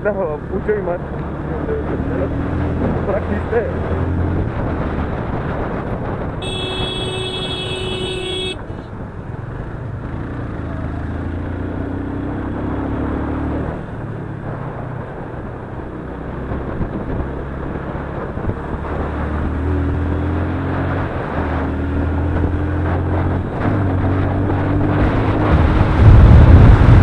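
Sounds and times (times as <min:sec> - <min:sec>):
motorcycle engine running: 0:05.2 - 0:12.0
vehicle horn: 0:06.4 - 0:08.8.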